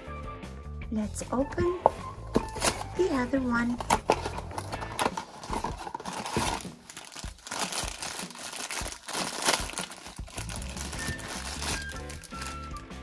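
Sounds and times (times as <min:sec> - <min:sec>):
plastic bag tearing and crinkling: 0:03.8 - 0:13.0.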